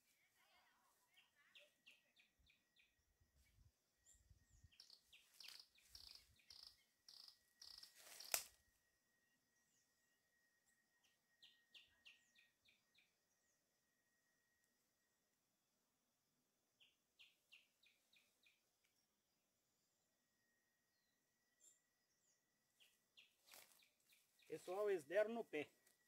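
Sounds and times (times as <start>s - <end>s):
high bird chirps: 4.1s - 8.4s.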